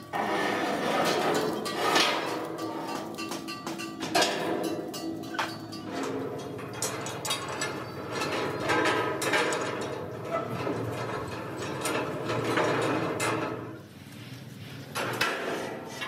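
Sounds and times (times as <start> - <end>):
metallic clicks and knocks on pipe: 1.2 - 10.0.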